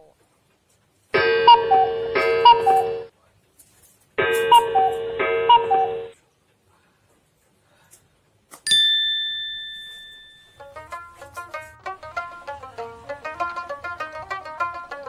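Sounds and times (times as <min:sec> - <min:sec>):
bright bell ding: 0:08.7 - 0:10.7
plucked-string music: 0:10.6 - 0:15.0.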